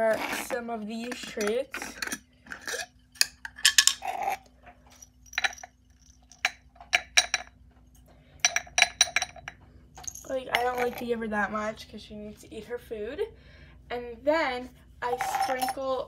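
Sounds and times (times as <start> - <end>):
glass jar and metal lid clinking: 0.0 - 7.5, 8.4 - 11.1, 15.0 - 16.0
treats clattering into metal bowl: 0.0 - 7.5, 15.0 - 16.0.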